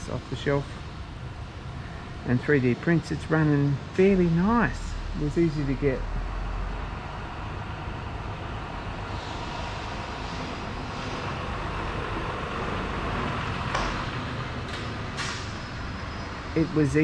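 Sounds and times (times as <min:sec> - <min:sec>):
hot air engine running: 0:09.0 - 0:14.0.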